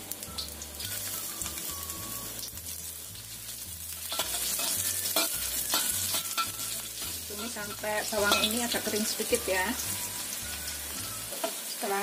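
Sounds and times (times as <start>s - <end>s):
shallots sizzling in hot oil: 0.0s - 12.0s
spatula scraping a wok: 3.8s - 9.9s.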